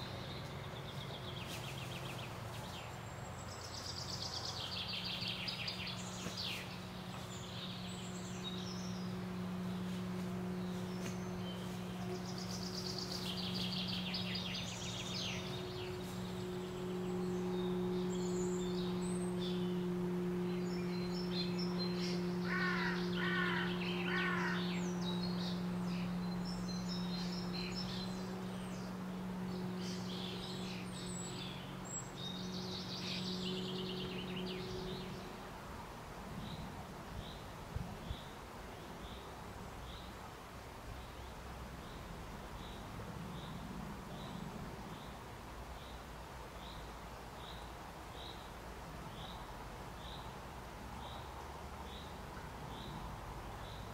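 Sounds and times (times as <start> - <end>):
birds trilling and chirping: 0.0 - 35.7
steady low hum: 0.0 - 53.9
short bird calls: 20.5 - 26.1.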